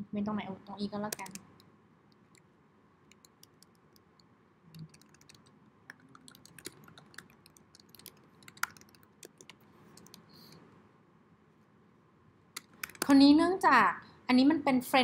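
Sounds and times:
typing on computer keyboard: 1.1 - 2.4, 3.1 - 10.3, 12.6 - 13.2.

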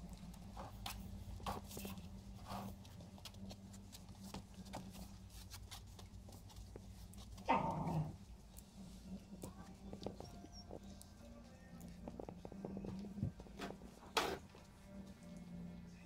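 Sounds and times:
puppies scuffling on carpet: 0.0 - 16.0
puppy barking: 7.4 - 8.2.

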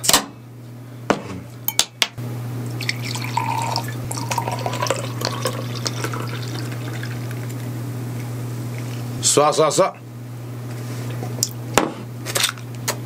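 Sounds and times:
beer pouring and fizzing: 2.7 - 7.6.

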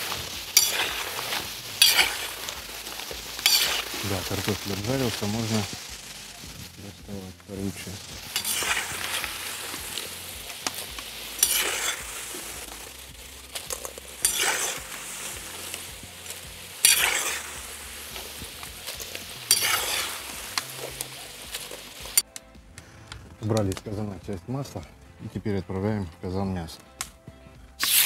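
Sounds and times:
potato wedges sizzling in oil: 0.0 - 22.3, 27.8 - 28.0
skimmer scraping in oil: 7.8 - 10.1, 11.4 - 12.0, 13.7 - 21.8.

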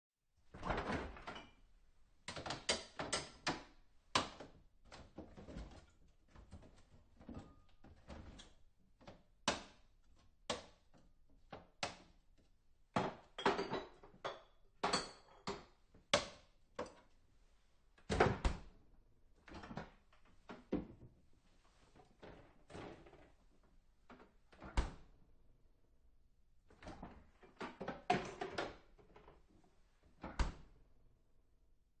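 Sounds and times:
items clattering in refrigerator: 13.0 - 15.7, 22.0 - 23.3, 26.8 - 29.5.

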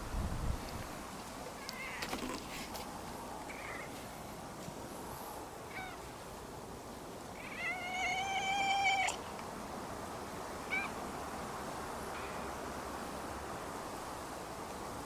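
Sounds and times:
cat meowing: 1.6 - 2.1, 5.7 - 6.0, 7.4 - 9.2, 10.6 - 11.0.

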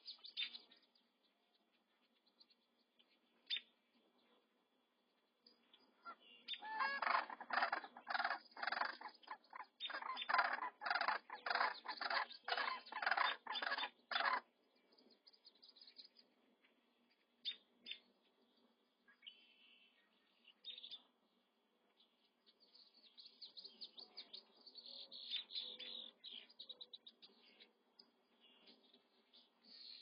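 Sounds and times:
cranes calling: 6.6 - 14.4.

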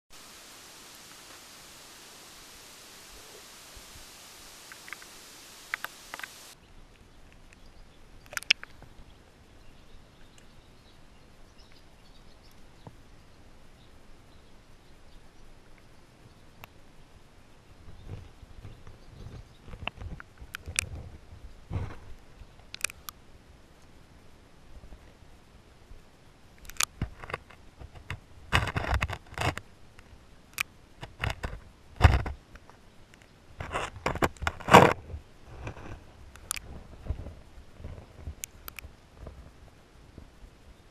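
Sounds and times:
steady hiss: 0.1 - 40.9
small ticks and clicks: 4.6 - 9.0, 17.8 - 24.0, 26.0 - 39.5
sharp clicks: 4.7 - 6.6, 7.4 - 8.8, 22.6 - 23.2, 26.6 - 29.6.

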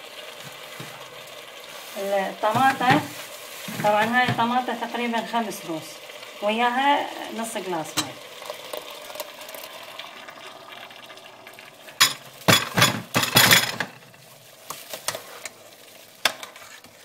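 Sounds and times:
meat and vegetables frying: 0.0 - 17.0
liquid pouring into pot: 7.8 - 13.3.

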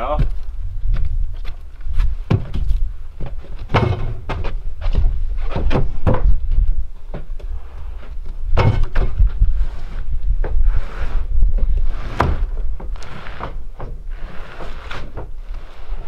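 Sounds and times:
knocks and scrapes in wooden shed: 0.0 - 16.0
wind rumble on microphone: 0.0 - 16.0.

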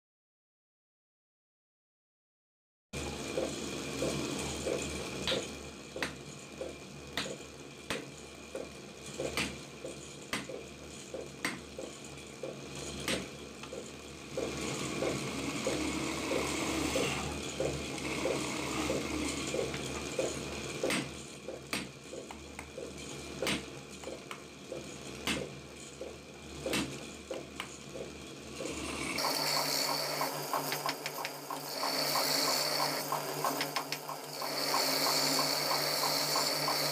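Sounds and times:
chisel cutting spinning wood: 3.0 - 36.9
wood lathe humming: 14.0 - 20.6, 28.7 - 36.9.

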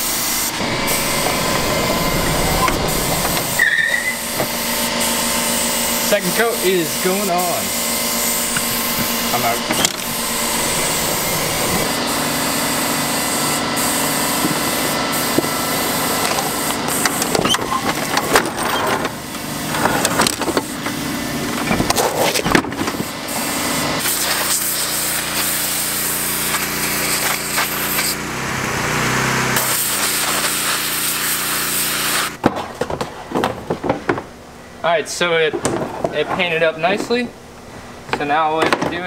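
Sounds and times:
pressure washer spraying: 0.0 - 17.6, 23.0 - 28.2, 28.8 - 32.4
power equipment running: 0.0 - 32.4.

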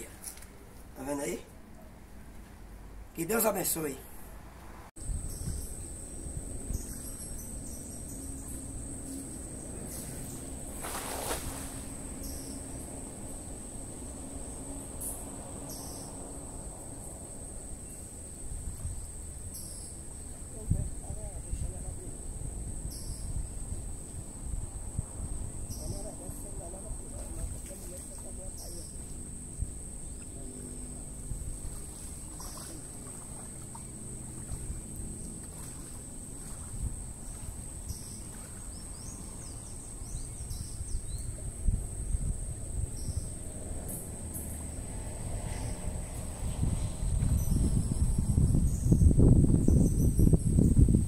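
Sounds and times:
steady low rumble: 4.2 - 10.8
insects trilling: 5.0 - 51.0
water lapping and sloshing: 6.4 - 17.5, 30.6 - 40.0.

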